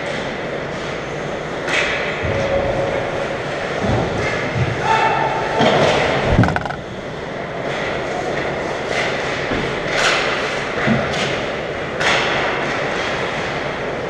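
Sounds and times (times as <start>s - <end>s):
stick and puck clacks: 6.3s - 6.8s, 8.4s - 13.2s.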